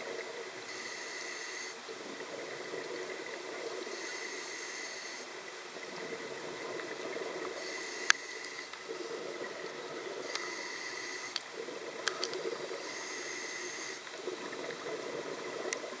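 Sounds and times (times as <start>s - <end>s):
hissing regulator inhales: 12.7s - 14.0s.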